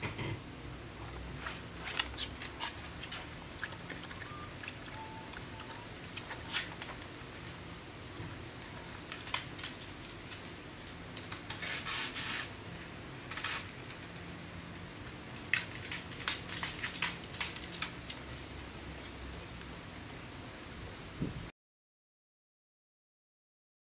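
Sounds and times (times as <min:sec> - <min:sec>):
dog licking metal bowl: 0:02.0 - 0:06.9.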